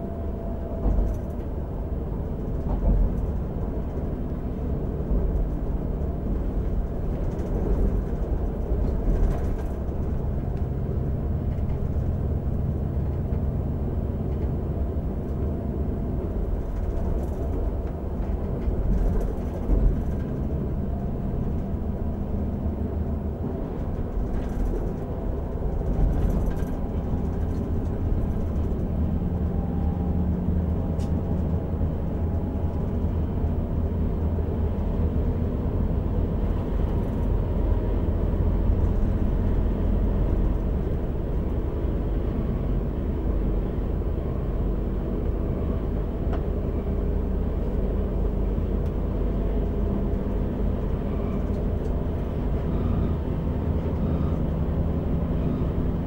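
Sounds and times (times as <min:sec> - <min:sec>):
diesel engine hum: 0:00.0 - 0:56.0
wheel and rail noise: 0:16.2 - 0:56.0.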